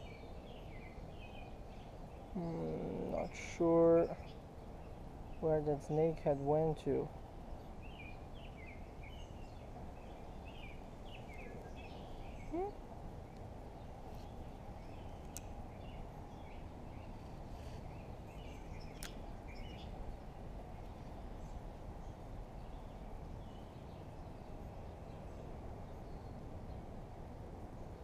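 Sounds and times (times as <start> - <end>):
faint bird chirps: 7.6 - 12.8.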